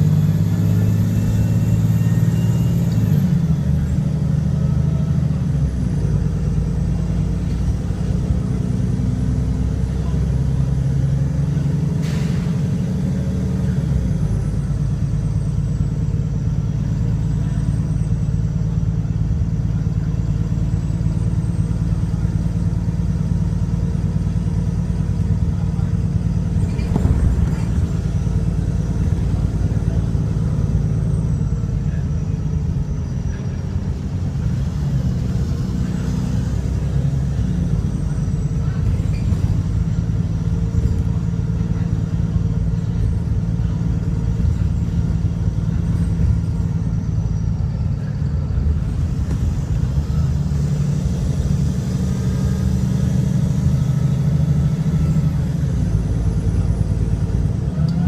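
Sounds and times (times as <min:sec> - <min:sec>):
bus diesel engine droning: 0:00.0 - 0:58.0.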